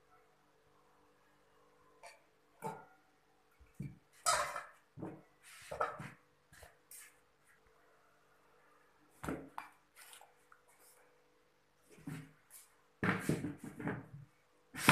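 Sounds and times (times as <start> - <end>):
plates and tableware clattering: 4.2 - 4.8, 5.7 - 6.2.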